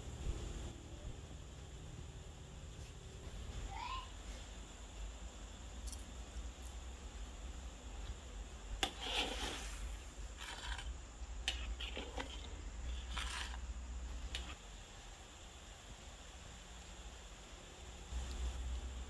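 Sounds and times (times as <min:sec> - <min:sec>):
metal spatula scraping a wok: 0:08.8 - 0:13.7.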